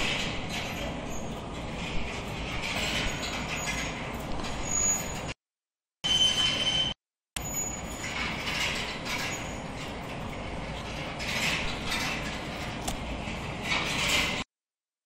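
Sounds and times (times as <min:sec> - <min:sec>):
conveyor mechanical rattle: 0:00.0 - 0:05.4, 0:06.2 - 0:14.5
high metallic squeals: 0:00.6 - 0:01.5, 0:02.8 - 0:05.4, 0:06.0 - 0:10.0.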